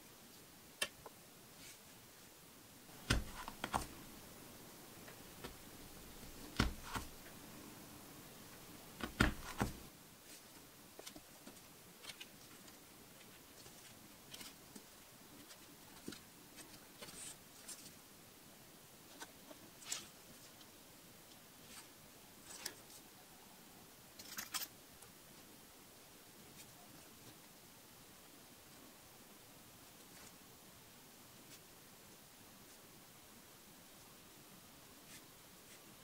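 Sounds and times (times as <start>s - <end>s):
tools tapping and scraping on mat: 2.9s - 4.1s, 5.0s - 7.4s, 9.0s - 9.9s.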